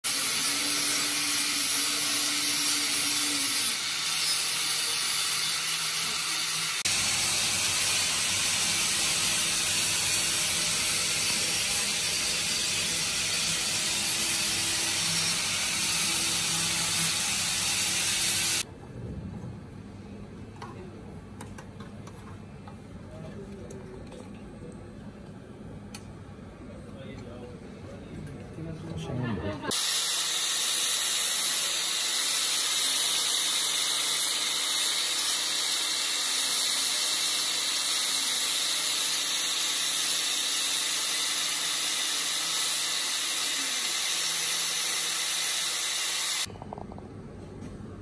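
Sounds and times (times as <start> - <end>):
angle grinder grinding metal: 0.0 - 18.6, 29.7 - 46.5.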